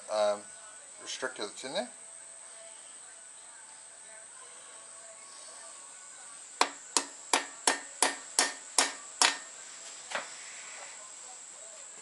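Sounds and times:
hammer striking metal: 6.6 - 9.5.

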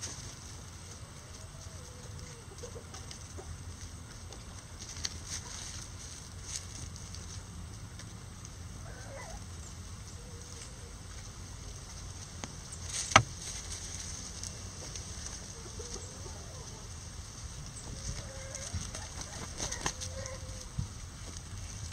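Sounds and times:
chickens clucking softly: 0.9 - 4.6, 14.8 - 17.1, 17.7 - 20.8
sharp tap: 13.1 - 13.3.

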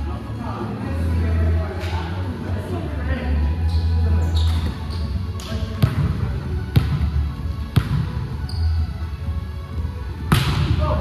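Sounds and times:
volleyball bouncing on gym floor: 5.4 - 8.4, 10.3 - 10.8.

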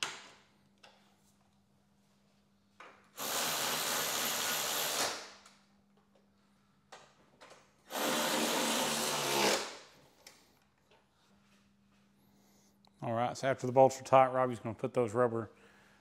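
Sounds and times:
cordless electric ratchet running: 3.2 - 5.2, 7.9 - 9.7.

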